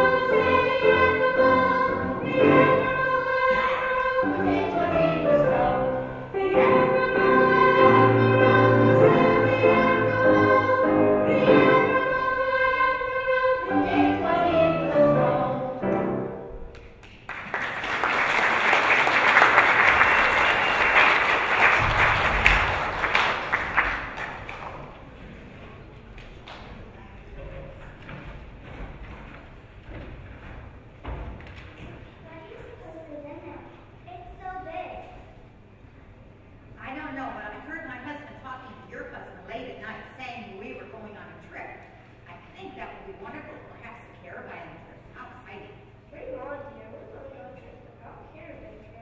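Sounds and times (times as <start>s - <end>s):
children singing: 0.0s - 16.3s
audience applause: 17.0s - 25.2s.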